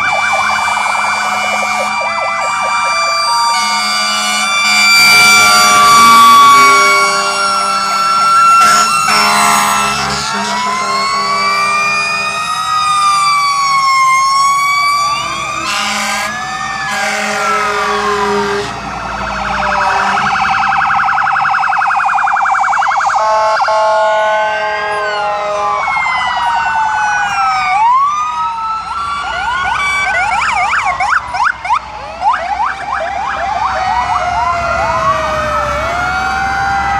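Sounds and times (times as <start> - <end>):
siren fast yelp: 0.0 - 36.9
siren steady tone: 0.0 - 36.9
sirens wailing: 0.0 - 36.9.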